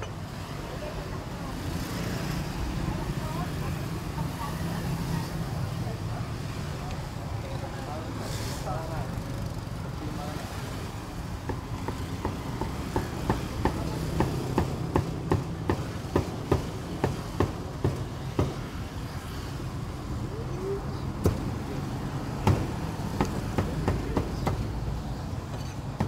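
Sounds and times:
cleaver chopping on wooden block: 11.4 - 18.6.

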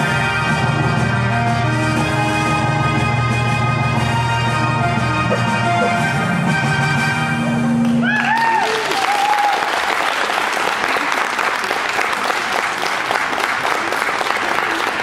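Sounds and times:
music: 0.0 - 8.9
audience applause: 7.8 - 15.0
audience cheering: 7.9 - 15.0.

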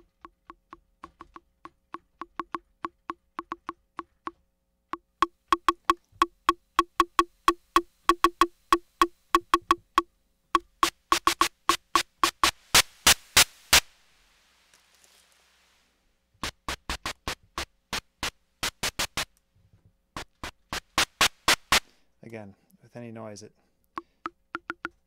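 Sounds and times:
drum machine percussive hits: 0.0 - 3.8, 5.2 - 13.9, 16.4 - 19.3, 20.2 - 21.8, 24.0 - 25.0
hiss: 10.8 - 19.3.

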